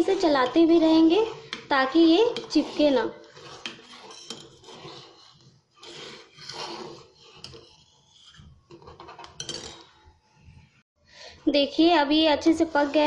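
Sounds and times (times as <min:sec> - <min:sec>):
spoon scraping steel pot: 0:00.0 - 0:10.8.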